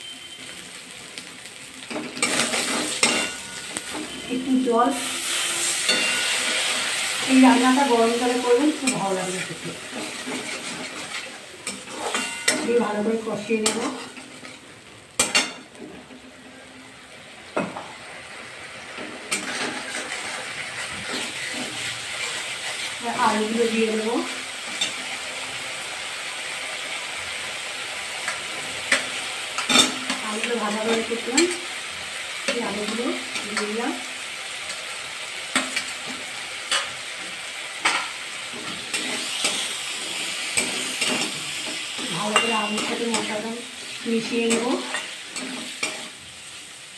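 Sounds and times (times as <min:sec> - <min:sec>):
soft sizzle: 0:00.0 - 0:46.9
spatula clanking on pan: 0:01.9 - 0:04.2, 0:05.9 - 0:06.5, 0:15.2 - 0:15.7, 0:37.8 - 0:39.7, 0:40.5 - 0:43.4
metal spatula scraping pan: 0:01.9 - 0:12.9, 0:19.0 - 0:23.0, 0:37.8 - 0:46.2.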